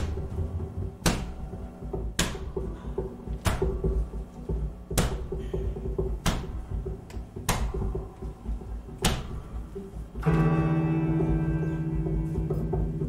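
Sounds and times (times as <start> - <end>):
sharp knocks: 0.0 - 8.3, 8.9 - 9.6
loud low drone with overtones: 0.0 - 13.0
upright double bass low notes: 7.9 - 13.0.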